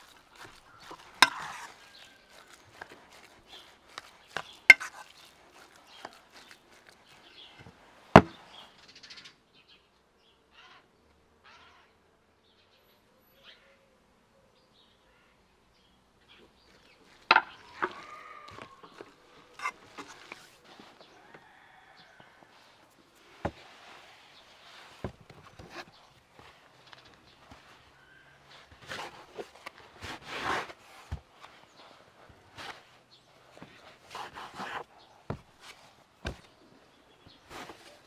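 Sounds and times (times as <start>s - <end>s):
metal spoon mixing meat: 0.0s - 7.4s.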